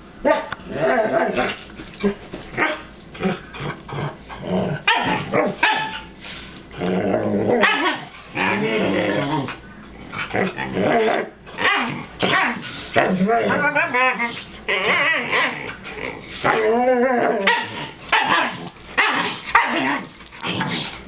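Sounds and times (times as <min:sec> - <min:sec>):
dogs growling: 0:00.6 - 0:06.0, 0:06.7 - 0:21.0
dogs barking: 0:04.8 - 0:06.1, 0:07.6 - 0:08.1, 0:17.4 - 0:20.1.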